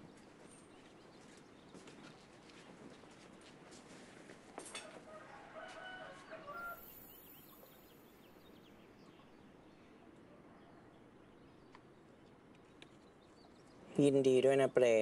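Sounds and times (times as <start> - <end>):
low steady hiss: 6.2 - 15.0.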